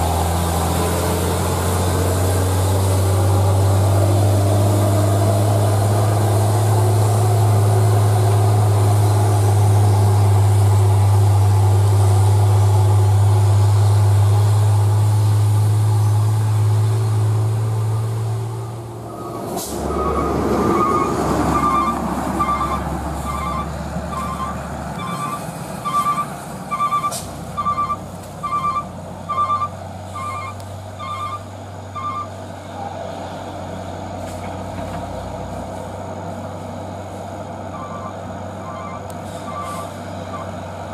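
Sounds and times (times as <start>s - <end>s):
diesel truck engine humming: 0.0s - 40.9s
electronic warning beeper: 20.0s - 32.3s, 37.8s - 39.9s.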